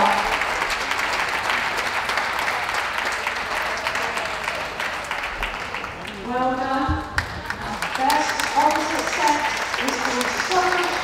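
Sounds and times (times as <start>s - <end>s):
audience applauding: 0.0s - 6.4s, 7.1s - 11.0s.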